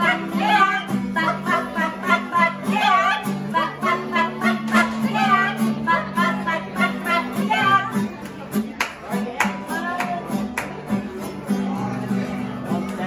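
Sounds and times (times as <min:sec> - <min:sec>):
person singing: 0:00.0 - 0:08.1
acoustic guitar strumming: 0:00.0 - 0:13.0.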